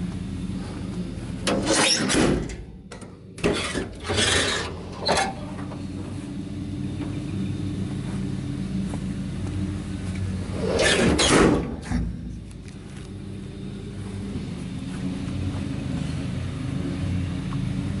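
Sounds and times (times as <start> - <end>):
engine idling: 0.0 - 18.0
rushing scraping noise: 10.5 - 12.6.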